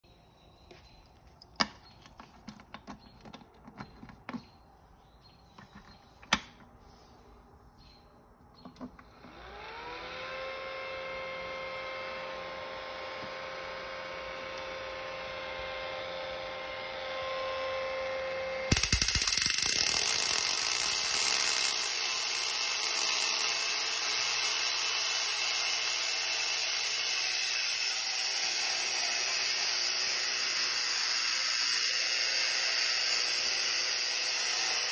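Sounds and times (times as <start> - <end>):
air pump whine: 9.0 - 34.9.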